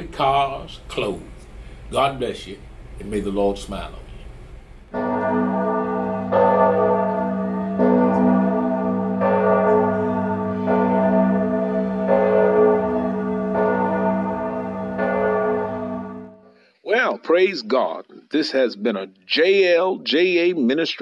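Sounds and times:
church bell tolling: 5.0 - 16.4.

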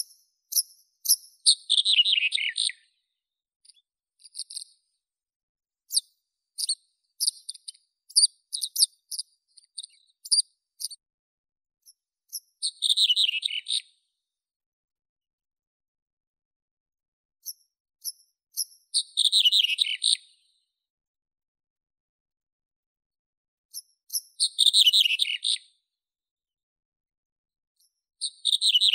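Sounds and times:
bird singing: 0.0 - 3.0, 5.9 - 11.0, 12.3 - 13.9, 17.4 - 20.4, 23.7 - 25.7, 28.2 - 28.9.

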